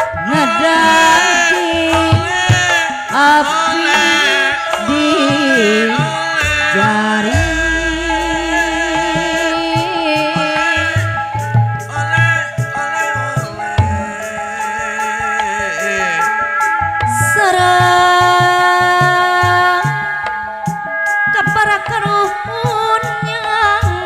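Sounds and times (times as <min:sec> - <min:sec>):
man singing: 0:00.2 - 0:16.5
deep low tone: 0:07.3 - 0:10.1
kettle gongs struck: 0:07.3 - 0:10.4.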